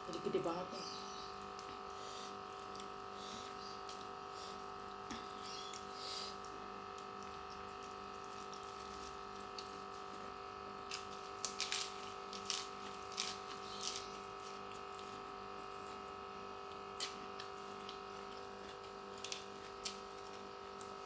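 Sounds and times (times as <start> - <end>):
steady humming tone: 0.0 - 21.0
soft chewing: 1.4 - 20.9.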